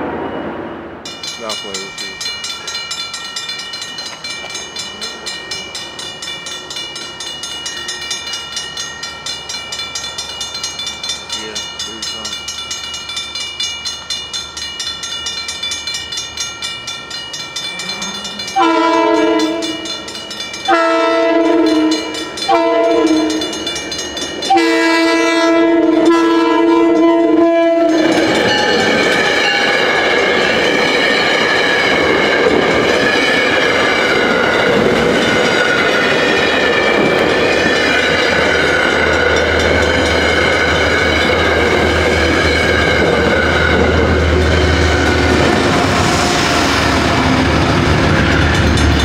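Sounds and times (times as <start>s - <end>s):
crossing bell ringing: 0.0s - 49.0s
train rumbling past: 0.0s - 49.0s
train horn blasts: 18.6s - 19.9s, 20.7s - 23.6s, 24.5s - 28.0s.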